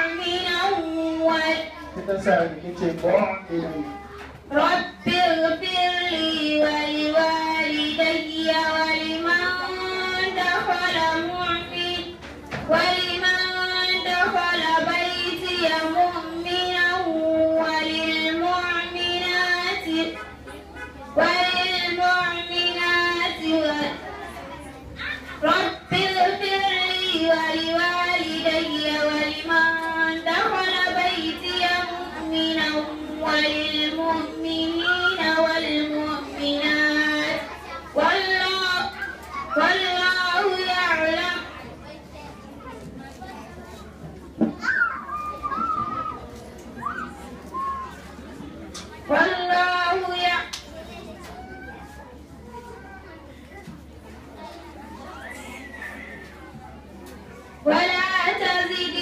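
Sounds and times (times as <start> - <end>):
girl chanting recitation: 3.8 - 42.8.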